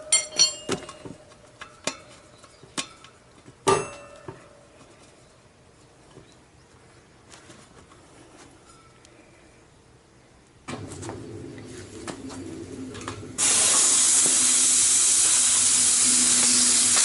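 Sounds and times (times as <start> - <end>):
metallic clinks of wheel: 0.0 - 4.4.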